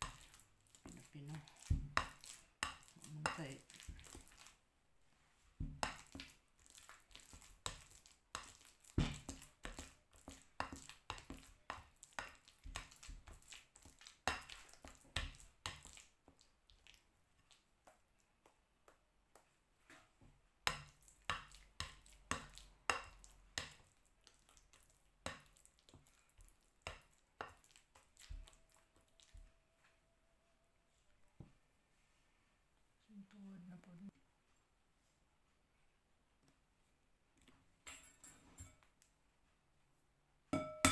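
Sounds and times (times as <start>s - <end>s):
masher knocking and scraping bowl: 0.0s - 4.4s, 7.3s - 15.9s.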